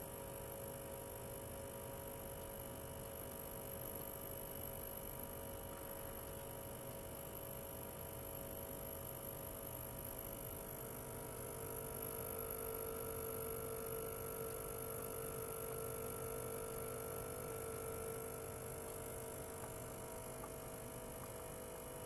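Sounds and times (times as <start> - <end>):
ultrasonic cleaner humming: 15.4 - 22.0.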